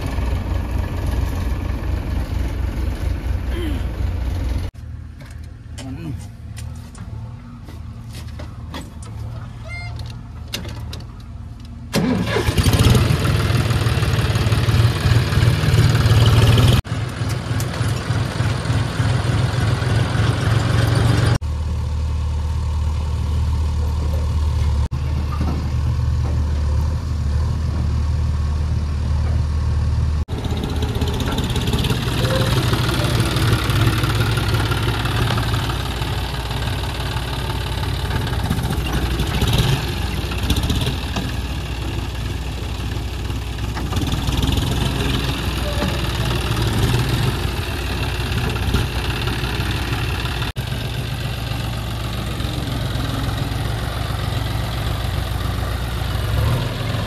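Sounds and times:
tractor diesel engine revving: 0:11.9 - 0:57.0.

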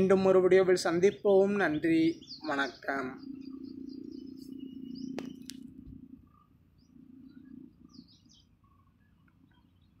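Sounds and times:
faint birds chirping: 0:00.0 - 0:10.0
low hum: 0:02.0 - 0:10.0
sharp click: 0:05.1 - 0:05.6.

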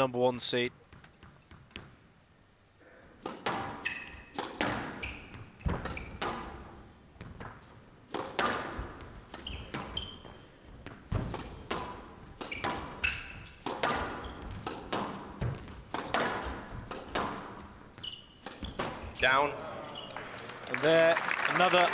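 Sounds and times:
squash ball hitting rackets and walls: 0:03.1 - 0:19.5
shoe squeaks: 0:03.8 - 0:06.3, 0:09.3 - 0:10.7, 0:12.4 - 0:14.6, 0:17.9 - 0:19.2.

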